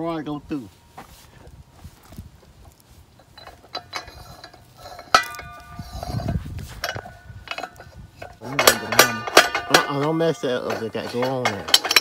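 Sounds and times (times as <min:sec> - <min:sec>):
steel parts clinking: 0:03.1 - 0:12.0
sharp ringing steel clank: 0:04.9 - 0:12.0.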